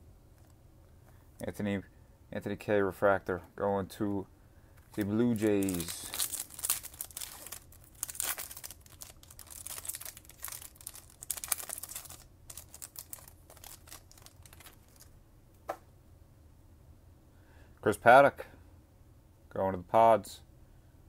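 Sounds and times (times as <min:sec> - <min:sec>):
foil wrapper crinkling and tearing: 0:04.9 - 0:15.1.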